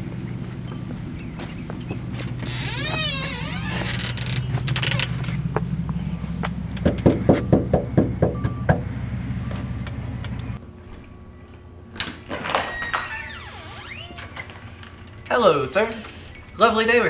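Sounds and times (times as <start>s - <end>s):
knuckles knocking on door: 6.8s - 8.9s.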